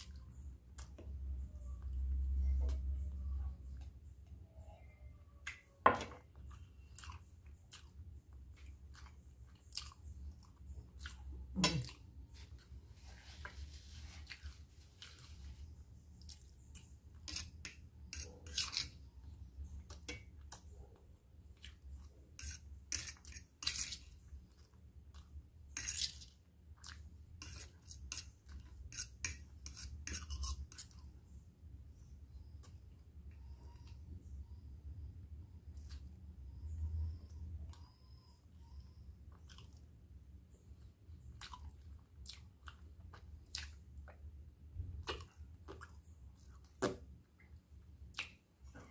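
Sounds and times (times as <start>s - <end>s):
chewing: 6.4s - 12.2s, 39.3s - 40.0s, 41.2s - 44.3s, 45.0s - 47.5s.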